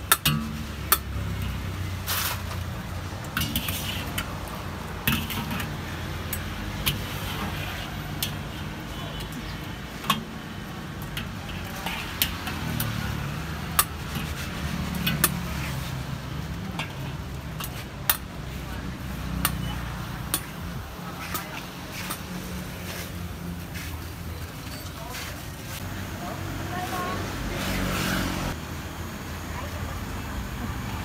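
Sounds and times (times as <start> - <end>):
food frying in oil: 0.0 - 23.4
ladle scraping strainer and wok: 0.0 - 25.8
low rumble of street traffic: 0.0 - 31.0.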